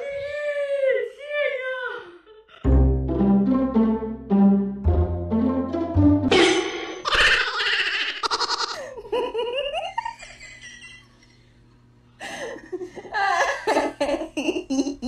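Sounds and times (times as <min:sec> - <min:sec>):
person laughing: 0:07.1 - 0:11.0, 0:12.2 - 0:15.0.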